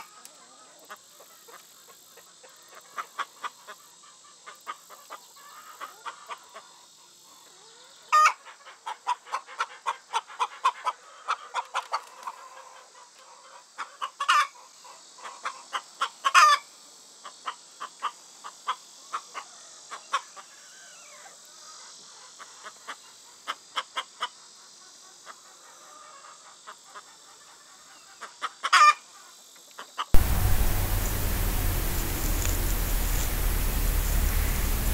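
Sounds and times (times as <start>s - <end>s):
chickens clucking: 30.2s - 34.9s
loud steady hiss: 30.2s - 34.9s.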